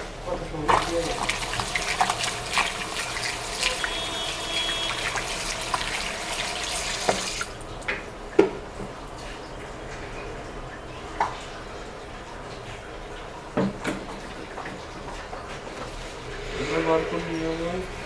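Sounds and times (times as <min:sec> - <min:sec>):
tap water splashing into sink: 0:00.6 - 0:09.0, 0:13.5 - 0:16.0.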